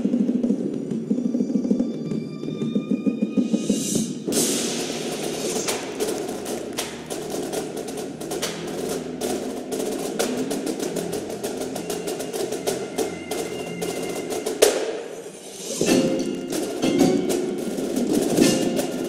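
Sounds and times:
quick drum strokes: 0:03.0 - 0:19.0
loud accented drum hit: 0:04.3 - 0:10.8.

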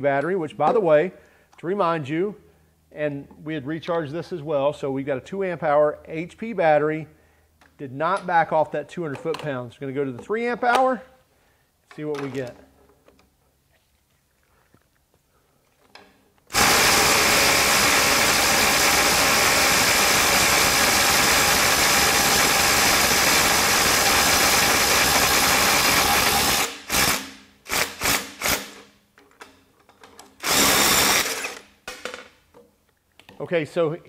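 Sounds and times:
impact driver hammering: 0:16.5 - 0:28.8.

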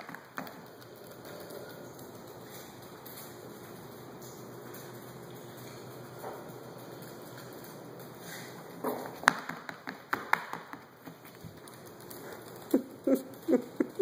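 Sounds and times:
dog claws tapping on hardwood floor: 0:00.0 - 0:07.8, 0:08.8 - 0:12.8.

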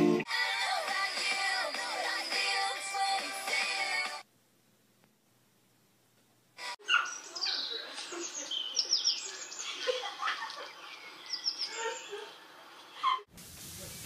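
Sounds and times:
small birds chirping: 0:06.8 - 0:13.3.

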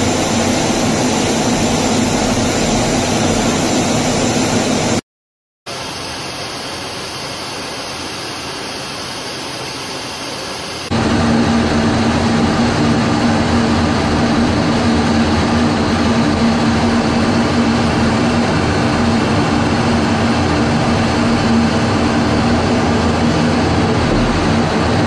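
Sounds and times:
jet engine and airflow rush: 0:00.0 - 0:05.0, 0:05.7 - 0:25.0
steady low hum: 0:10.9 - 0:25.0.

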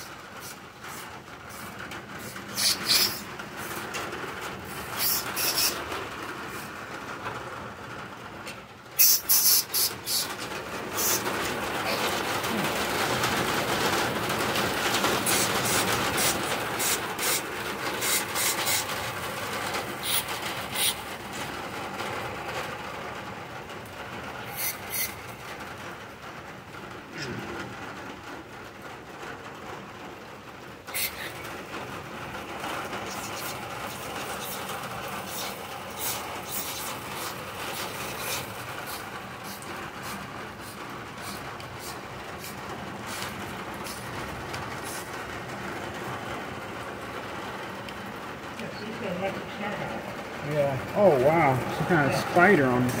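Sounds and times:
scrubbing engine grime: 0:09.0 - 0:22.4, 0:32.7 - 0:45.1.

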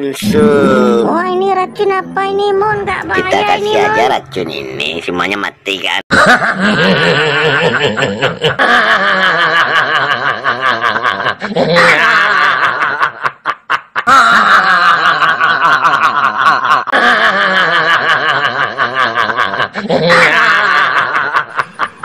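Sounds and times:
men laughing loudly: 0:06.1 - 0:22.0.

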